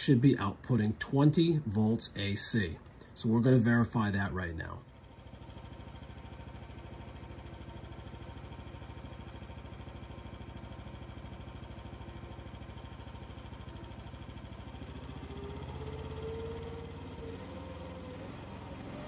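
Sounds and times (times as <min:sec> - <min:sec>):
small engine running: 0:03.8 - 0:19.0.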